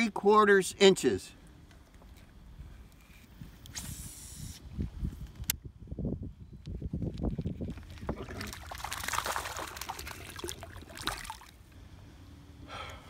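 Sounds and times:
fish splashing at water surface: 7.7s - 11.6s.

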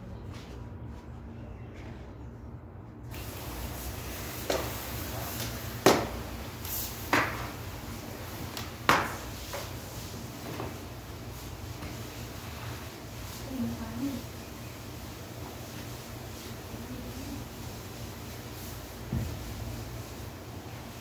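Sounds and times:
water spraying onto tiles: 3.1s - 10.1s.

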